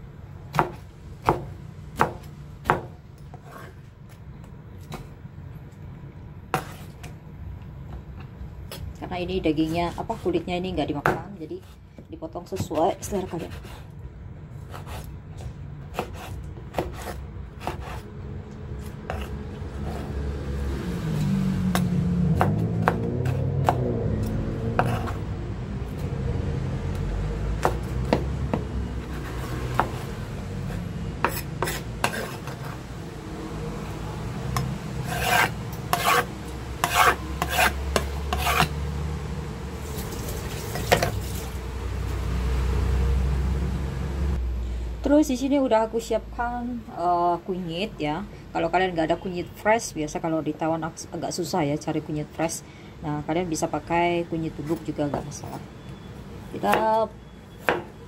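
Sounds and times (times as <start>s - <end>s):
cleaver scraping pineapple rind: 15.9s - 18.1s, 24.8s - 25.2s, 29.0s - 32.8s, 34.6s - 38.8s.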